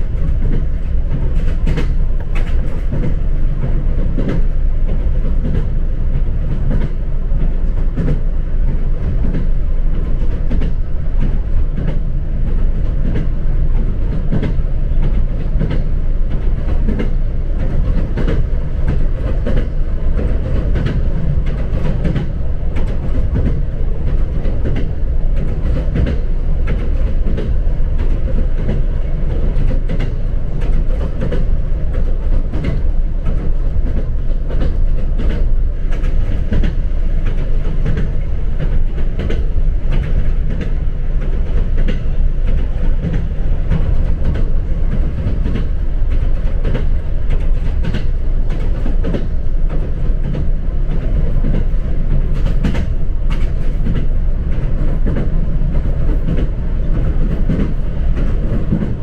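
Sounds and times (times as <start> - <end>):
clicks and knocks from track: 0.0 - 59.0
train wheels rumbling on rails: 0.0 - 59.0.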